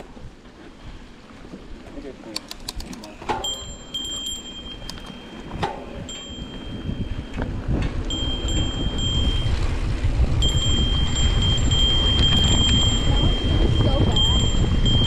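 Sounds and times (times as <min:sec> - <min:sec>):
tyres rumbling on dirt: 0:00.0 - 0:15.0
wind: 0:00.0 - 0:15.0
high-pitched bike whine: 0:03.4 - 0:15.0.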